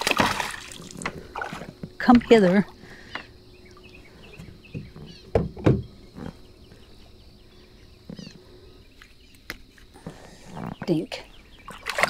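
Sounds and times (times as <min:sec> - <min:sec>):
birds chirping faintly: 0:00.7 - 0:12.0
dull knocks on kayak: 0:04.7 - 0:05.9.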